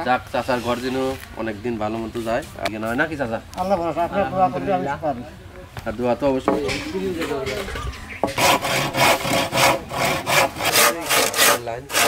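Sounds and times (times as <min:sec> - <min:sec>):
hand saw cutting bamboo: 0:08.3 - 0:12.0.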